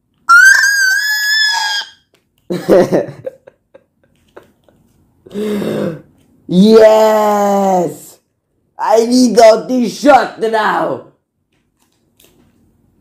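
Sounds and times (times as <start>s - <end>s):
lower cry: 0.3s - 2.0s
high-pitched vocal shriek: 0.3s - 2.1s.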